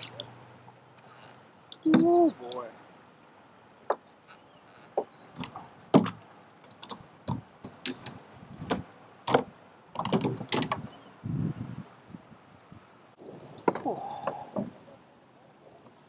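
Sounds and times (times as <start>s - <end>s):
sharp clicks and knocks of fishing gear: 4.9s - 10.9s.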